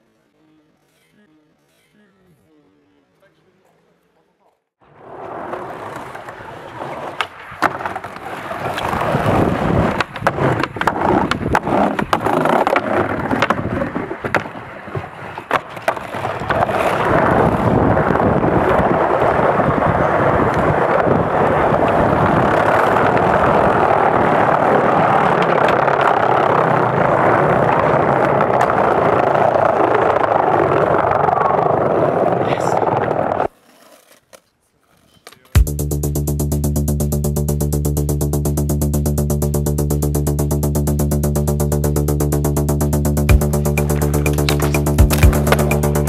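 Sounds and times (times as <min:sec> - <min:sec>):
skateboard wheels rolling on pavement: 0:04.8 - 0:35.6, 0:43.2 - 0:46.0
skateboard clacks: 0:05.1 - 0:17.7, 0:18.6 - 0:35.7, 0:43.3 - 0:46.0.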